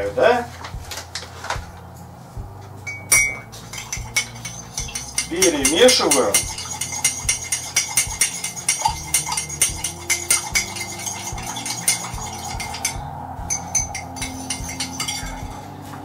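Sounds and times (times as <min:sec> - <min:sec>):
teaspoon clinking in mug: 0:02.9 - 0:15.6.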